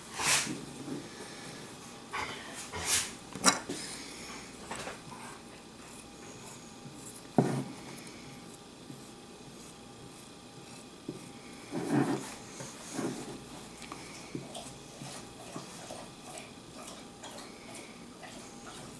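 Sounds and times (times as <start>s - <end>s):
knife scraping hide: 10.6s - 13.5s.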